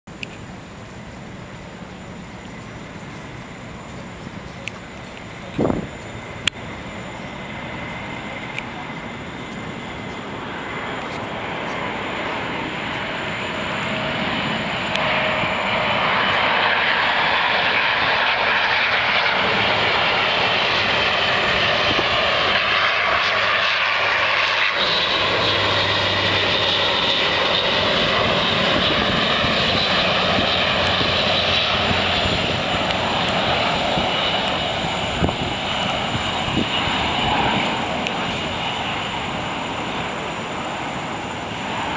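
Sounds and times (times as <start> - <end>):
turboprop aircraft drone: 0.1 - 41.9.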